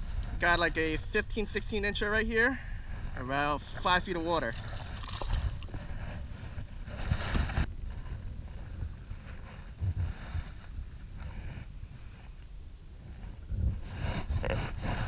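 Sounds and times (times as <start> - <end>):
wind buffeting microphone: 0.0 - 15.0
fish splashing into water: 4.6 - 5.7.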